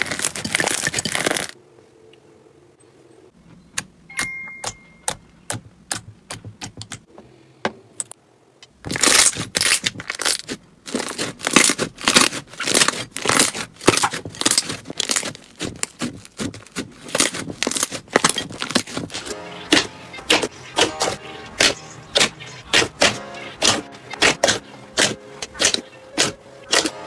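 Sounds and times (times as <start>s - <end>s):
slime crackling and tearing: 0.0s - 1.6s, 8.8s - 27.0s.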